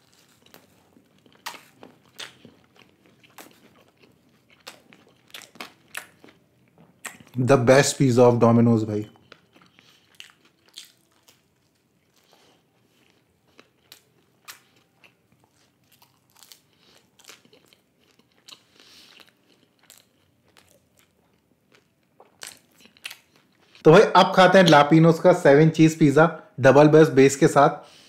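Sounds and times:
chewing pizza crunches: 0.0 - 7.4, 9.0 - 23.8.

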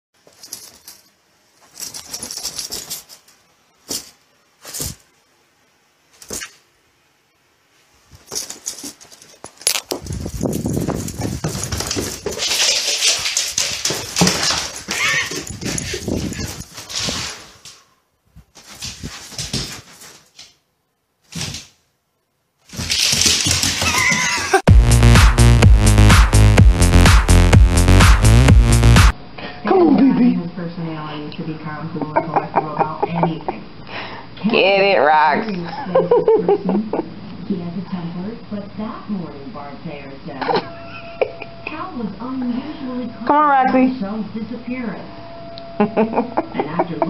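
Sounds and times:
dog whining and grumbling: 14.9 - 16.7.

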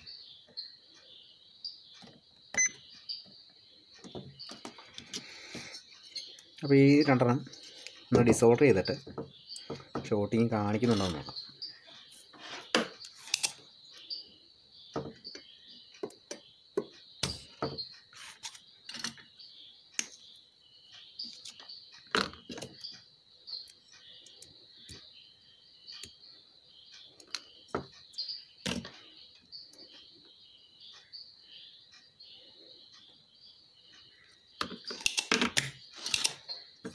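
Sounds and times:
steady high-pitched chirping: 0.0 - 36.9
bench tools clicking and knocking: 34.6 - 36.9.

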